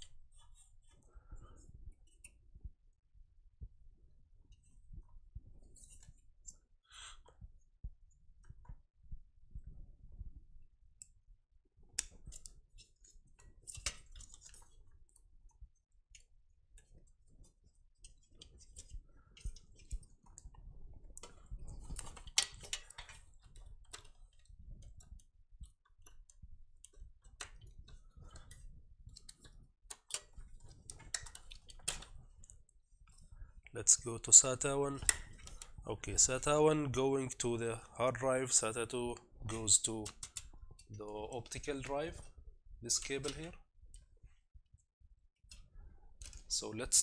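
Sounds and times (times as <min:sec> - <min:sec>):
cables plugging in clicks: 0:12.0 - 0:12.6, 0:21.2 - 0:25.2, 0:26.3 - 0:32.6, 0:34.4 - 0:35.8, 0:39.9 - 0:40.6, 0:42.9 - 0:43.6.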